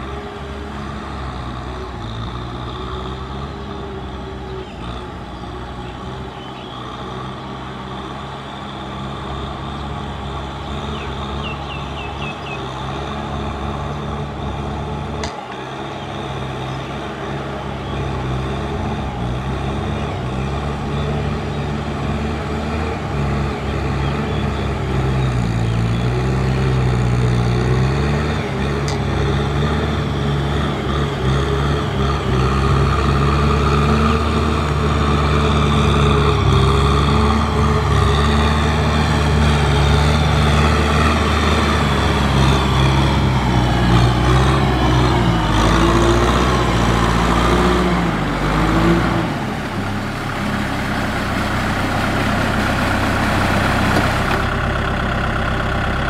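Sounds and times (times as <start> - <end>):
tractor diesel engine running: 0.0 - 56.0
blade pushing mud: 17.9 - 55.0.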